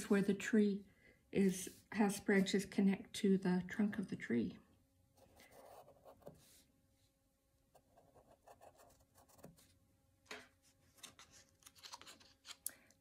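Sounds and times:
pencil scratching on paper: 5.2s - 6.7s, 7.7s - 9.7s.

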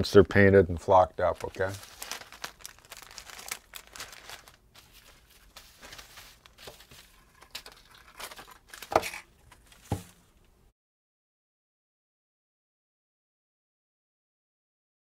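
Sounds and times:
wax paper and plastic crinkling: 0.9s - 10.4s.

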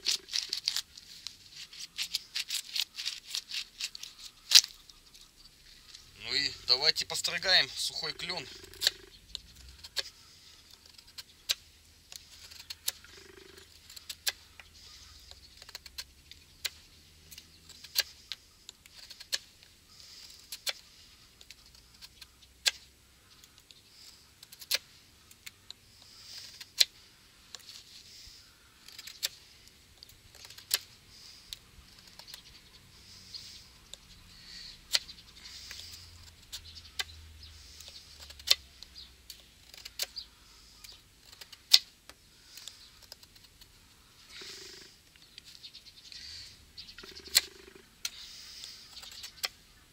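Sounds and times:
knife whittling wood: 17.7s - 20.9s.

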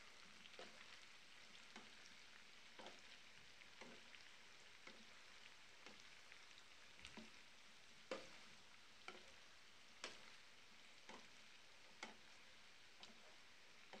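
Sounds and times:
potatoes frying in a pan: 0.0s - 14.0s
spatula tapping a pan: 8.1s - 8.5s, 9.1s - 9.4s, 10.0s - 10.4s.

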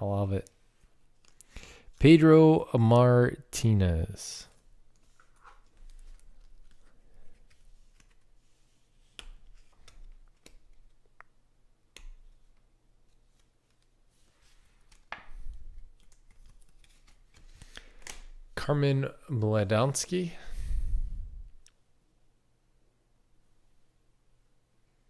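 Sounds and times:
card stack rustling: 4.5s - 11.2s, 11.9s - 18.6s.

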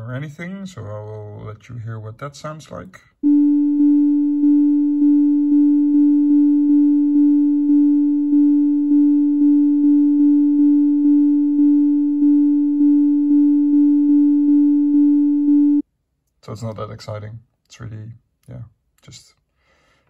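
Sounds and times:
sine tone notes: 3.2s - 15.8s.

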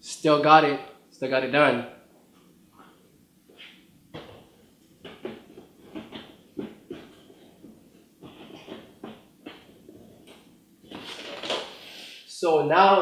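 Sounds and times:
shoe box knocks and rustles: 4.1s - 11.7s.

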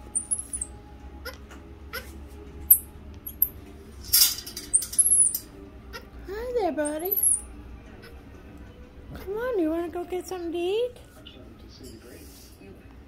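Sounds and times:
monkey high-pitched chirps: 0.0s - 0.7s, 6.8s - 7.5s
wire cage rustling: 0.0s - 0.7s, 2.7s - 5.6s, 6.8s - 7.5s.

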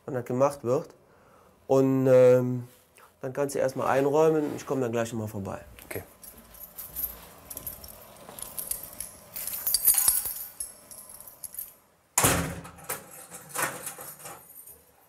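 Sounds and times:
keys jangling: 6.2s - 11.8s, 13.1s - 15.0s
steel cell door slamming: 12.2s - 14.3s.

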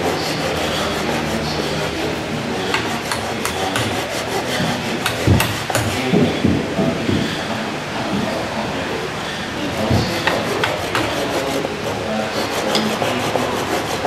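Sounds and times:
hand tools rasping wood: 0.0s - 6.5s, 9.6s - 14.0s
sharp taps: 2.7s - 4.0s
heavier knocks: 5.0s - 7.3s.

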